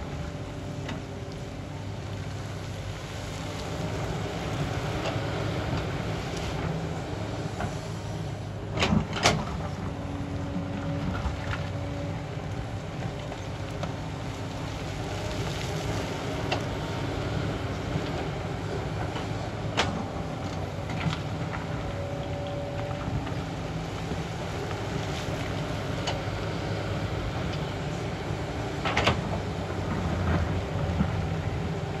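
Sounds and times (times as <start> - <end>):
excavator diesel engine running: 0.0 - 32.0.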